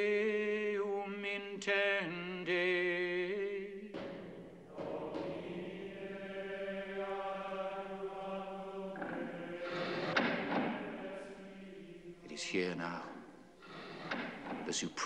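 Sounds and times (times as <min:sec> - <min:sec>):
person chanting plainchant: 0:04.7 - 0:13.7.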